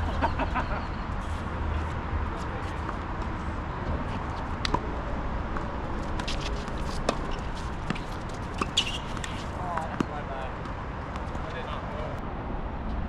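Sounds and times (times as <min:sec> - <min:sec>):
outdoor background noise: 0:00.0 - 0:13.0
footsteps on a tennis court: 0:01.2 - 0:11.8
tennis ball impacts: 0:05.5 - 0:11.5.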